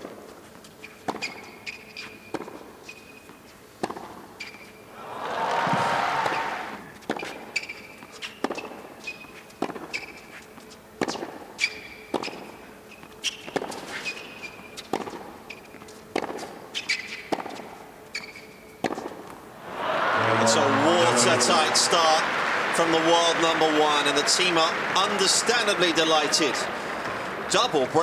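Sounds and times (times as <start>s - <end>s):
court shoes squeaking: 0.2s - 4.9s, 5.8s - 19.6s
crowd noise: 4.9s - 7.0s, 19.5s - 28.0s
racket striking tennis ball: 13.3s - 19.4s.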